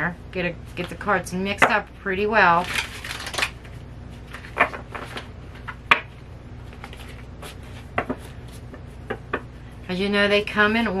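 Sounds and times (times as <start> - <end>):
cards clacking while shuffled: 2.6 - 9.5
soft rustling of cards: 2.6 - 9.9.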